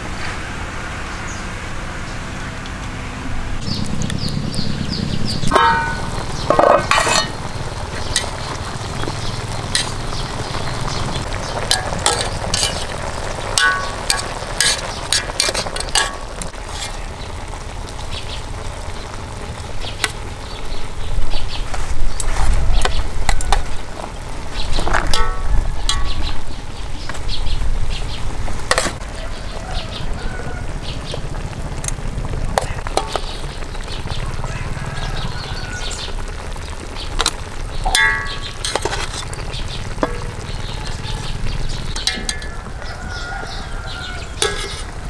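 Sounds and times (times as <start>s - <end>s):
pot simmering with a hiss: 3.6s - 45.0s
metal tongs knocking on pot: 5.5s - 7.4s, 11.7s - 12.8s, 13.6s - 16.3s, 25.1s - 26.2s, 37.9s - 39.2s, 42.0s - 42.8s, 44.4s - 44.9s.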